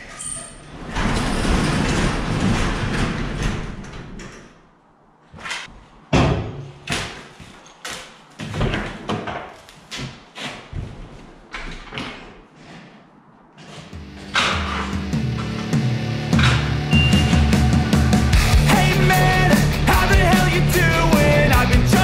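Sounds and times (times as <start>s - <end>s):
door slamming: 16.3s - 17.6s.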